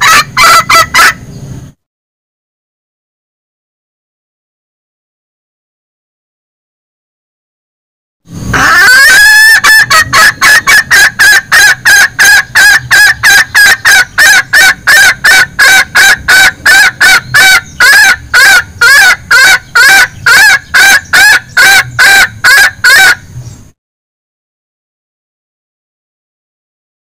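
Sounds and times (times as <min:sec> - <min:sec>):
junglefowl clucking call: 0:00.0 - 0:01.2, 0:08.5 - 0:23.3.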